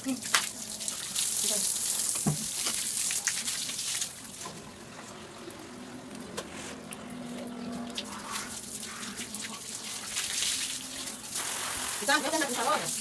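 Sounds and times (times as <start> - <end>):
hose water splashing on tiles: 0.0 - 4.6, 7.7 - 13.0.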